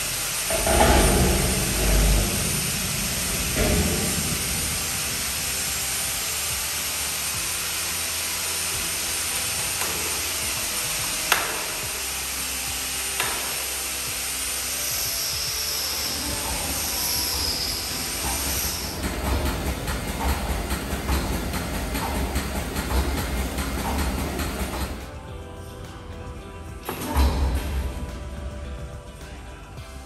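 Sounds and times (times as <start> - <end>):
steady hiss of equipment: 0.0 - 25.2
metal door banging shut: 0.5 - 6.2, 26.9 - 28.0.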